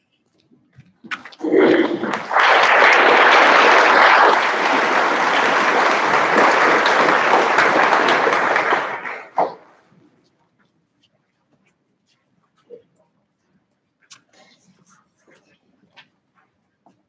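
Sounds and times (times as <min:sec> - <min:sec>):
audience applauding: 0:01.4 - 0:09.6.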